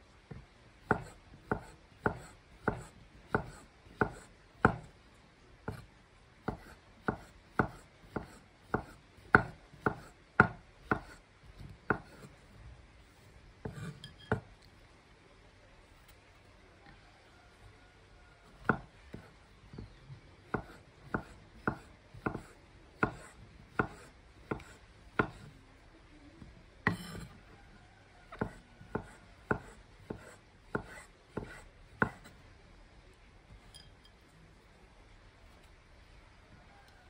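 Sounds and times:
knife knocking on wooden board: 26.9 - 27.3.

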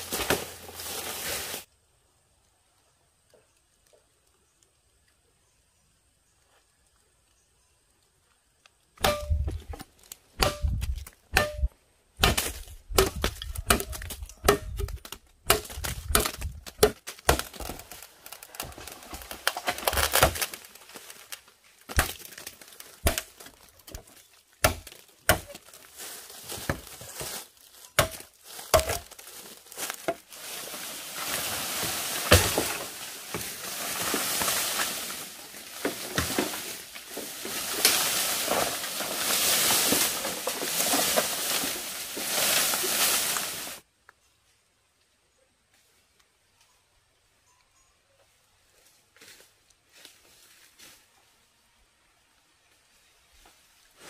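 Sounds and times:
crinkling rustles: 0.0 - 1.7, 12.5 - 43.8
sharp cracks and knocks: 9.0 - 25.7, 28.0 - 30.2, 31.2 - 43.5.

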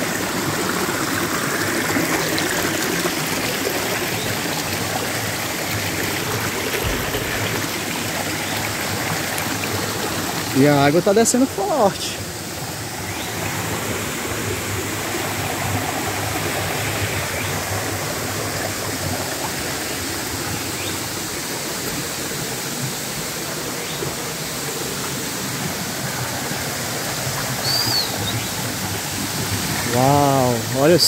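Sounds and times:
creek rushing over rocks: 0.0 - 31.0
high chirp: 27.6 - 28.5.

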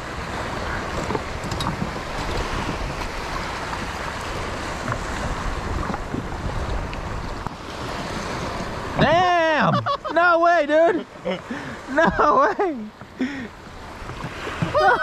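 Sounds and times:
wind buffeting microphone: 0.0 - 10.1
water lapping and splashing: 0.0 - 15.0.

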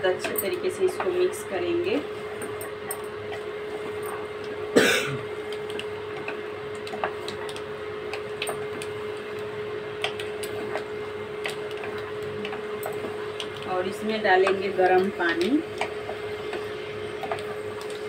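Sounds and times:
steady hum: 0.0 - 18.0
person coughing: 4.8 - 5.3.

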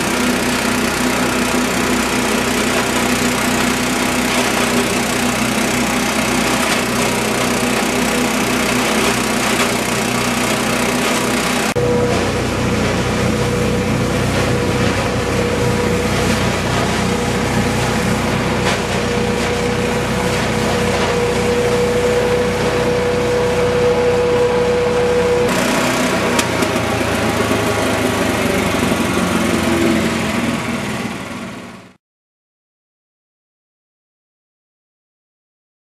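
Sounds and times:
petrol engine running: 0.0 - 32.0
high whine: 5.9 - 31.6.

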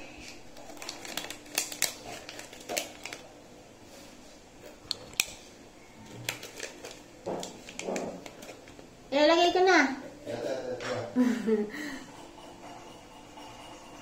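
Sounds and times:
wrapper crinkling and clicking: 0.2 - 3.3, 4.8 - 5.4, 6.0 - 8.9.

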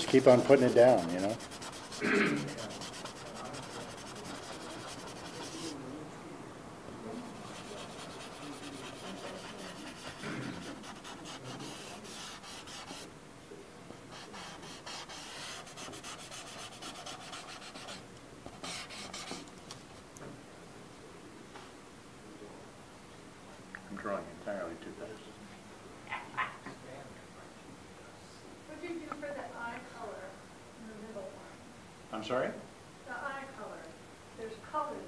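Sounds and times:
charcoal shading on paper: 0.0 - 5.8, 7.4 - 13.1, 14.1 - 19.5.

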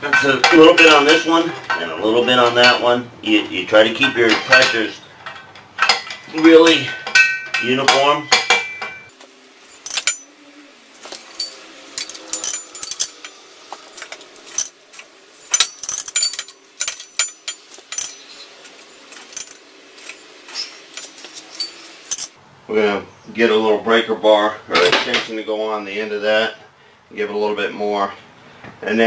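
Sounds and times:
light metallic clinks: 9.7 - 10.3, 11.2 - 14.8, 15.4 - 22.4.

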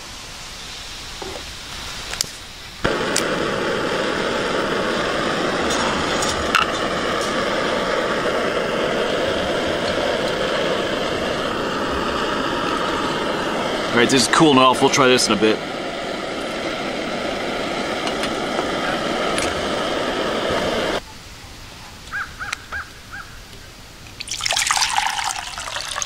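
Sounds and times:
gas burner hissing: 0.0 - 21.0, 24.2 - 26.0
igniter clicks: 2.1 - 21.0.

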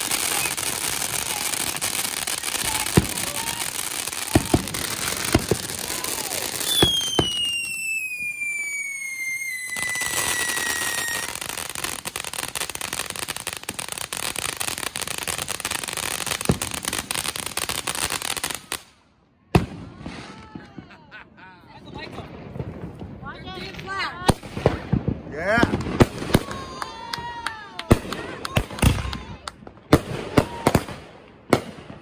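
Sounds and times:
firework fountain hissing: 0.0 - 18.8
firework bangs: 0.0 - 18.9, 19.5 - 21.0, 21.8 - 32.0
falling firework whistle: 2.2 - 11.5.

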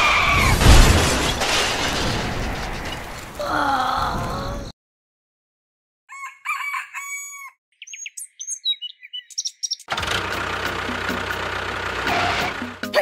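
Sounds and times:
rooster crowing: 6.1 - 7.6
high bird chirps: 6.1 - 9.9.

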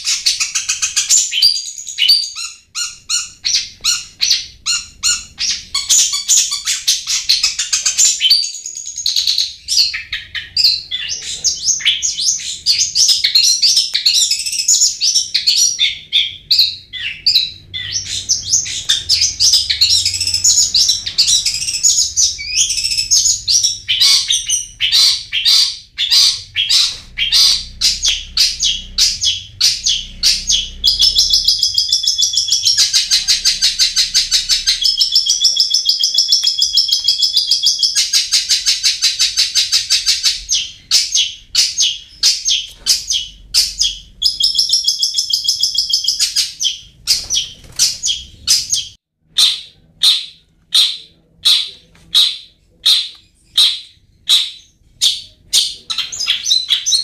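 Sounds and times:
bird singing chirps and whistles: 0.0 - 57.0.

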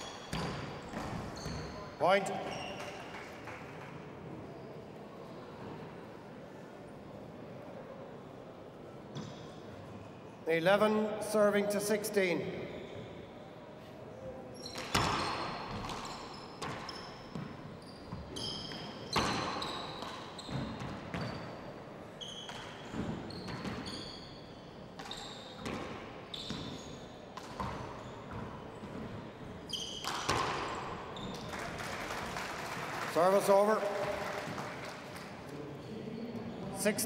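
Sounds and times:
sneakers squeaking on wooden floor: 0.0 - 3.2, 14.5 - 31.5
handball hitting walls and floor: 0.2 - 4.0, 14.6 - 21.4, 22.2 - 24.0, 25.0 - 26.8, 27.4 - 31.8.

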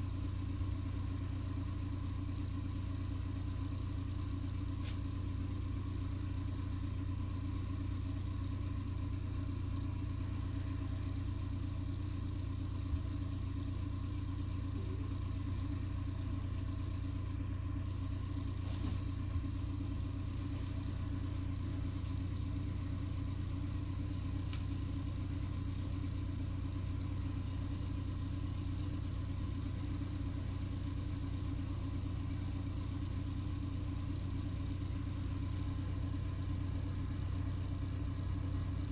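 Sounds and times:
low machine hum: 0.0 - 38.9.

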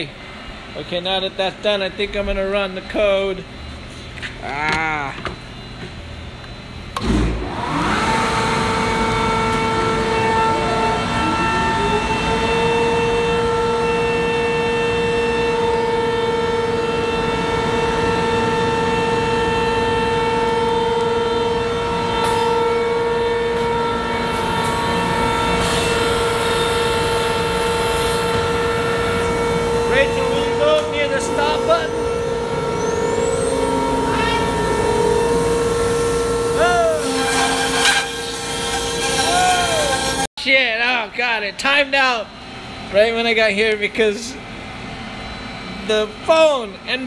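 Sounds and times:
machine motor whining: 6.9 - 40.3.

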